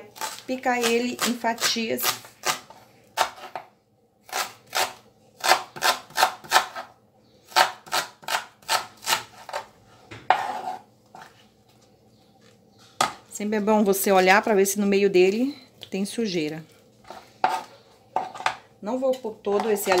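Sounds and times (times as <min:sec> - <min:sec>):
slices scraped on board: 0:00.1 - 0:03.7, 0:04.3 - 0:06.9, 0:07.5 - 0:09.7, 0:10.3 - 0:11.4, 0:17.0 - 0:18.6.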